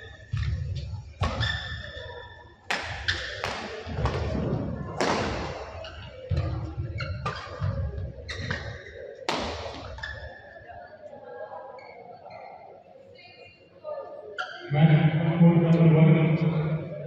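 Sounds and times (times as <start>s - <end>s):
shoes squeaking on court: 0.2s - 2.4s, 5.8s - 9.0s
racket hitting shuttlecock: 2.7s - 4.3s, 5.0s - 5.7s, 9.3s - 10.2s.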